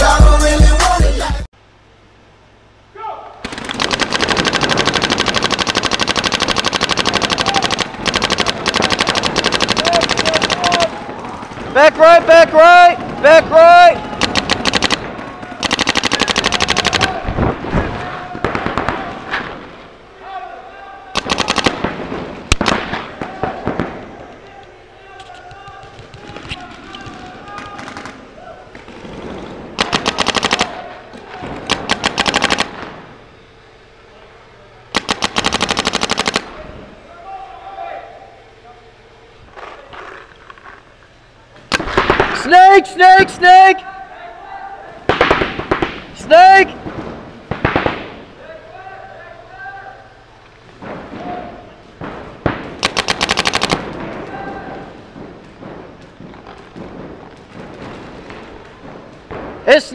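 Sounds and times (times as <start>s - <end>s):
paintball marker rapid firing: 3.4s - 13.4s, 14.0s - 17.6s, 21.2s - 23.9s, 25.4s - 33.0s, 34.9s - 36.6s, 45.1s - 48.3s, 52.0s - 59.9s.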